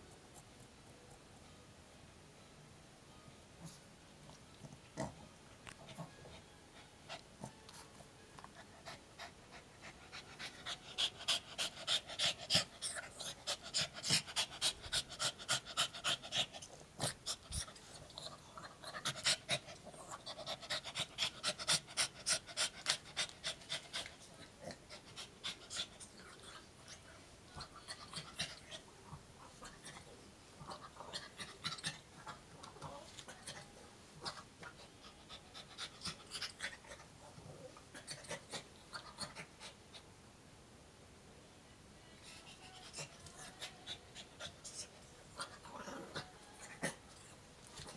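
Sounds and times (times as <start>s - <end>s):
puppy panting: 5.8s - 28.8s.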